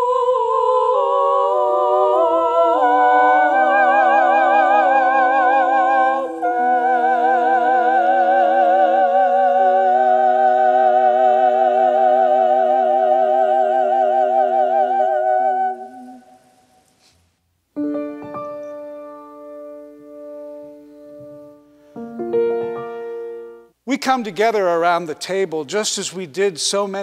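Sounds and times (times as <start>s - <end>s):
voices singing sustained chords: 0.0s - 16.6s.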